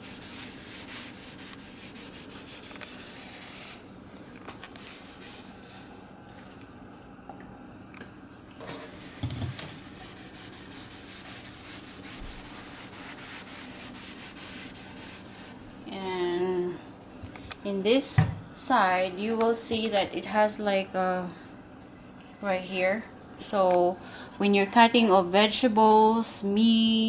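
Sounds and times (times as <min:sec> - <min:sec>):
cloth wiping wooden board: 0:00.0 - 0:03.9, 0:04.8 - 0:06.0, 0:08.7 - 0:15.6.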